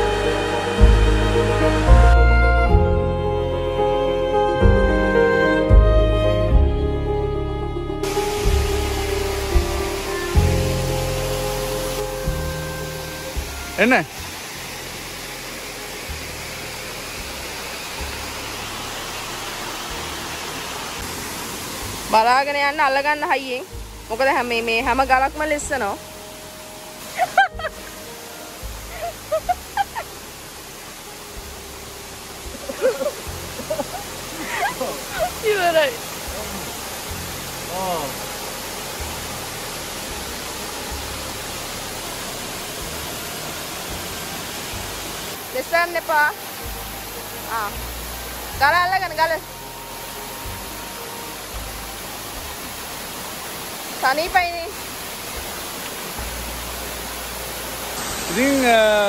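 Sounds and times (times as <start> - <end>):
waterfall rushing: 0.0 - 6.8, 7.9 - 59.0.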